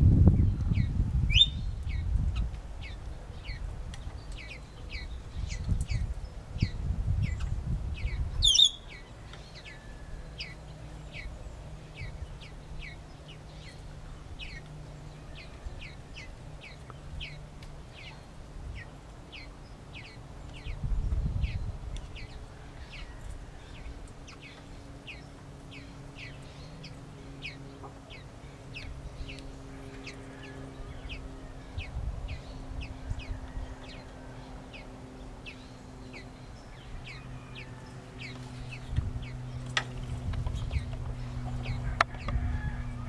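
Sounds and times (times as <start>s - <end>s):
small bird chirping: 0.4s - 34.0s.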